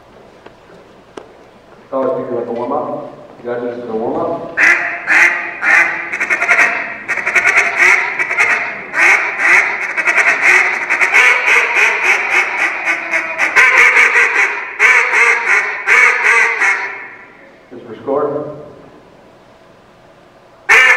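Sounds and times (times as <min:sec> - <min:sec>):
duck call quacking: 0:04.6 - 0:17.3, 0:20.7 - 0:20.9.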